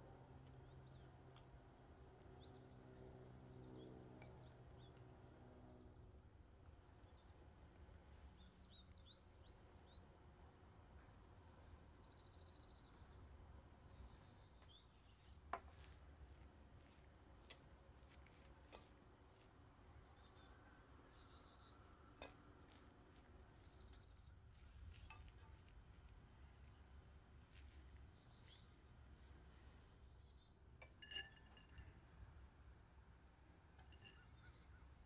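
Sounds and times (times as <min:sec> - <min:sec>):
birds chirping: 0:10.8 - 0:32.0, 0:33.7 - 0:35.0.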